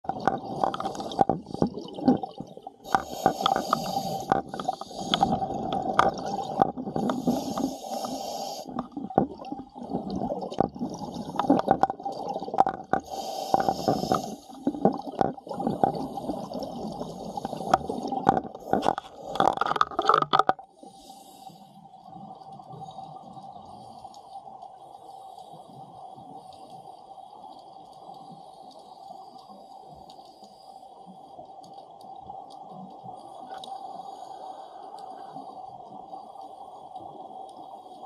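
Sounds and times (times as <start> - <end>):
exhaled bubbles rushing: 0.1 - 2.8, 4.5 - 7.1, 8.7 - 12.9, 14.6 - 20.6
diver's regulator breathing: 2.8 - 9.0, 12.8 - 20.1, 20.8 - 21.8.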